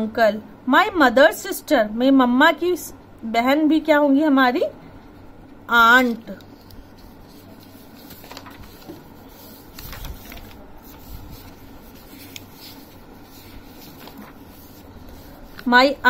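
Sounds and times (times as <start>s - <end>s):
soft paper taps: 6.0s - 15.7s
paper sheets rustling and flapping: 6.0s - 16.0s.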